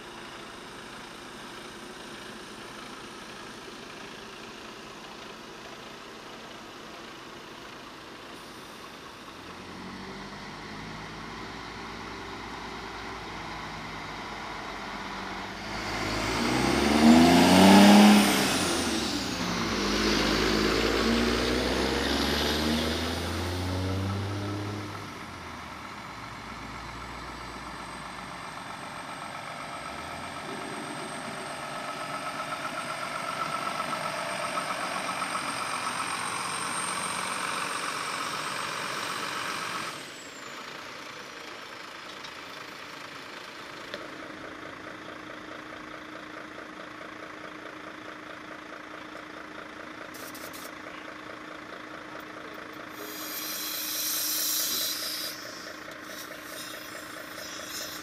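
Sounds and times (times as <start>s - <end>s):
diesel trucks idling: 0.0s - 24.2s, 24.8s - 58.0s
air brake hiss: 52.9s - 58.0s.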